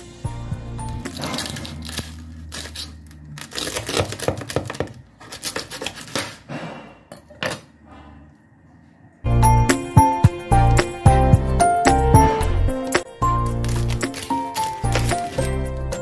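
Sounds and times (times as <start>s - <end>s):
knife crunching through crackling: 0.8s - 6.5s, 13.4s - 16.0s.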